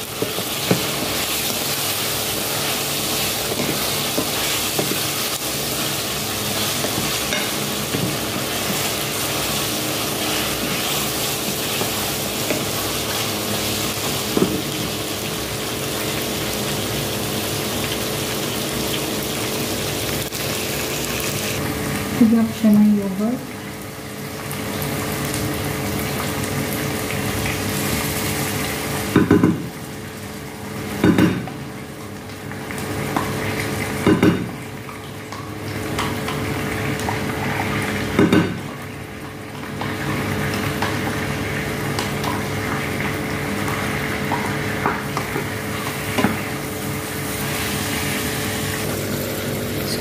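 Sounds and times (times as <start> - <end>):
spatula stirring pan: 0.0 - 15.0
chicken sizzling in a pan: 0.0 - 50.0.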